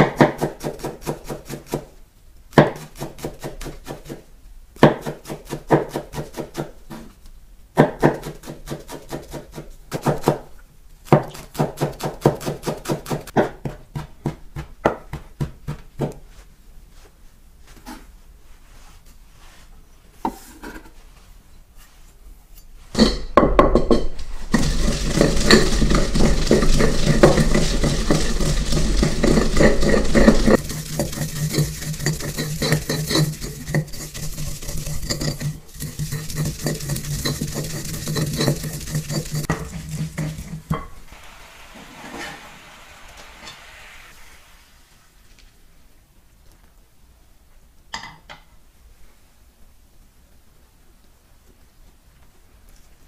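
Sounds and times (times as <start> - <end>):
pestle grinding in mortar: 0.0 - 1.9, 23.0 - 41.0.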